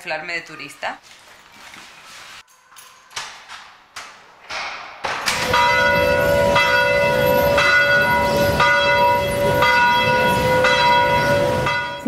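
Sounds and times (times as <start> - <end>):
bell tolling: 5.3 - 12.0.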